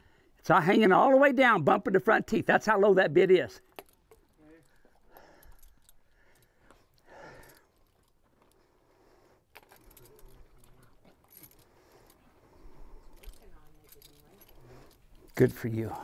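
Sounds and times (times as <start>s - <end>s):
metallic clinks of bridle hardware: 3.6s - 16.0s.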